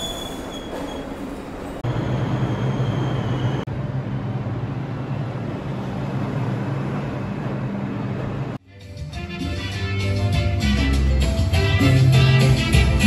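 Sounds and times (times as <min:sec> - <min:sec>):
high wheel squeal: 0:00.0 - 0:03.6
subway train rumble: 0:00.0 - 0:08.6
steady low train hum: 0:00.1 - 0:08.6.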